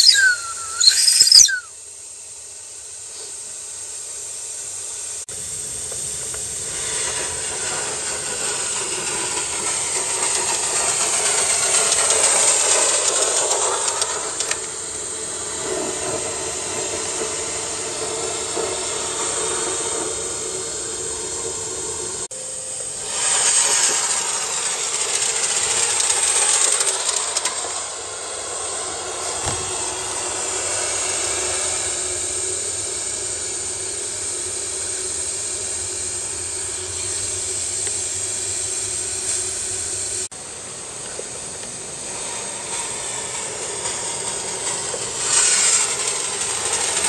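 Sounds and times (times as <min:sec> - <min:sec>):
steam hissing: 0:00.0 - 0:47.0
wagons rolling on track: 0:07.0 - 0:14.7, 0:41.0 - 0:47.0.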